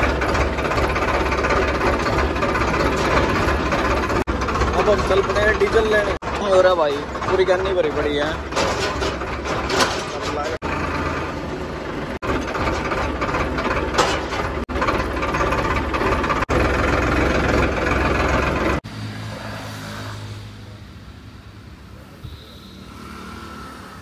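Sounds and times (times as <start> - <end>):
diesel tractor engine running: 0.0 - 18.9.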